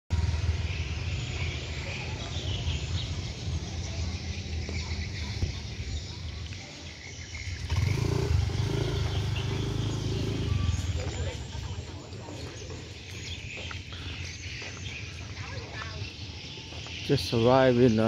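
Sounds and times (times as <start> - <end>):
low street rumble: 0.1 - 18.0.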